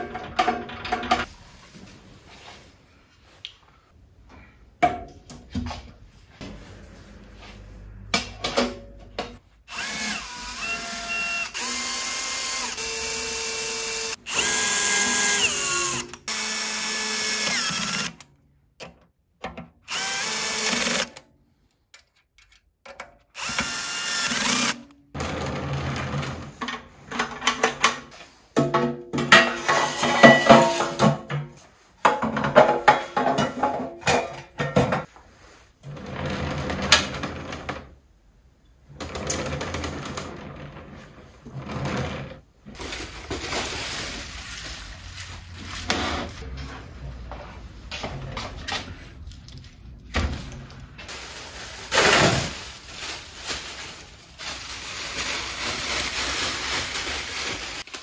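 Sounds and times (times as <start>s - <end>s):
clattering and knocking: 0.0s - 1.3s, 25.2s - 35.1s
cordless drill whining: 9.7s - 18.2s, 19.9s - 21.1s, 23.4s - 24.8s.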